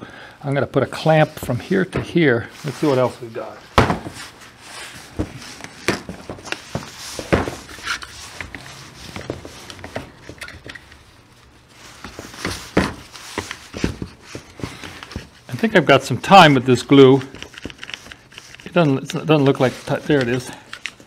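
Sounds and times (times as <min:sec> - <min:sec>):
clamps and tools clicking and knocking: 0:09.6 - 0:11.0.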